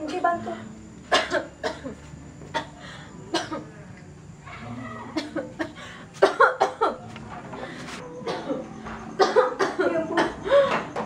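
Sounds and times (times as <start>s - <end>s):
woman coughing: 1.1s - 2.7s, 3.3s - 3.7s, 5.1s - 7.0s, 8.2s - 10.7s.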